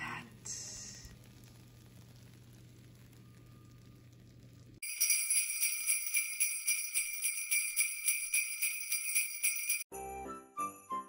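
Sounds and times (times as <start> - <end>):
sleigh bells jingling: 4.8 - 9.9.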